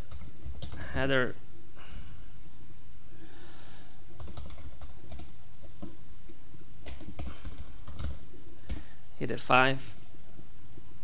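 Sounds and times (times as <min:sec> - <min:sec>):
low electrical hum: 0:00.0 - 0:11.0
computer keyboard keystrokes: 0:00.1 - 0:00.8, 0:04.2 - 0:05.9, 0:06.8 - 0:08.9.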